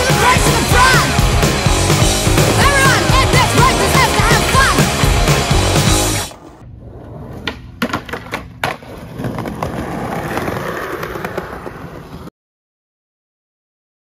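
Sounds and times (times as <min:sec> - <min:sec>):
punk rock music: 0:00.0 - 0:06.4
skateboard wheels rolling: 0:01.8 - 0:04.5, 0:06.3 - 0:12.3
skateboard clacks: 0:07.4 - 0:12.3.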